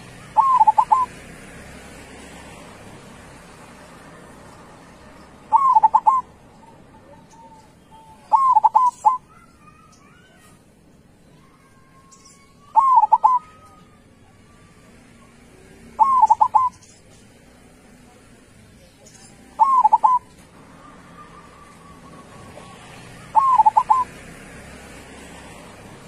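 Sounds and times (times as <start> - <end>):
dove cooing: 0.0 - 1.1, 5.4 - 9.5, 12.7 - 13.8, 15.9 - 16.9, 19.5 - 24.2.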